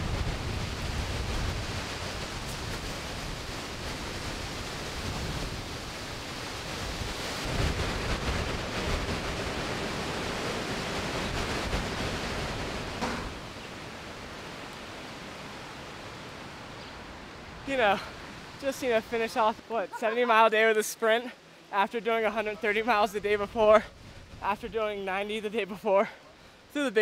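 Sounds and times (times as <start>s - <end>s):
wind noise on microphone: 0.0s - 15.4s, 23.1s - 25.0s.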